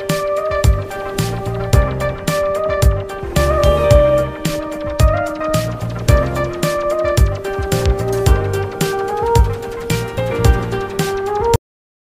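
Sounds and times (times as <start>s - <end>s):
melody over drum beat: 0.0s - 11.6s
kick drum: 0.6s - 0.9s, 1.7s - 2.0s, 2.8s - 4.2s, 5.0s - 5.2s, 6.1s - 6.3s, 7.2s - 8.6s, 9.4s - 9.6s.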